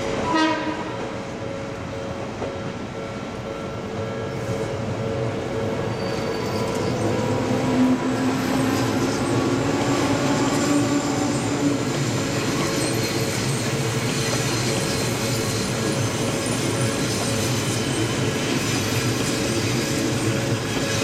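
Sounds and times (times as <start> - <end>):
thin wheel squeals: 5.9 - 7.3.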